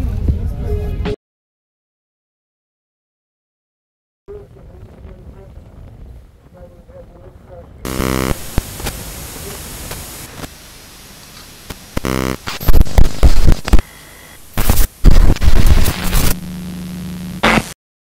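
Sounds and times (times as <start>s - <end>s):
electrical buzzes: 7.9s - 17.8s
loud noise bursts: 7.9s - 17.8s
static hiss: 7.9s - 17.8s
low steady hum: 15.6s - 17.7s.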